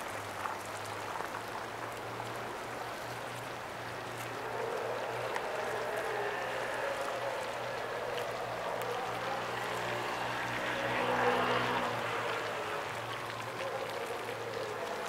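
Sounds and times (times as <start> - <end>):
wash of noise: 0.0 - 15.0.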